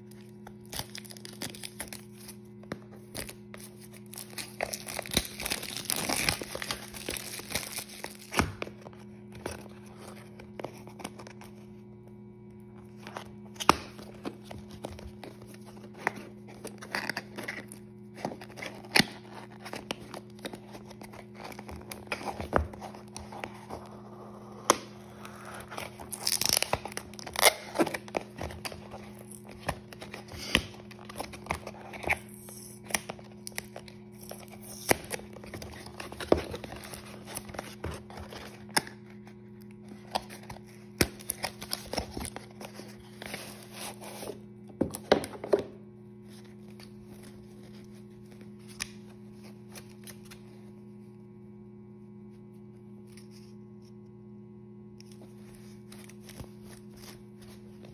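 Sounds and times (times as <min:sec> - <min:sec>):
steady low hum: 0:00.0 - 0:57.9
cardboard tearing: 0:00.4 - 0:11.6, 0:12.9 - 0:39.3, 0:39.9 - 0:44.4.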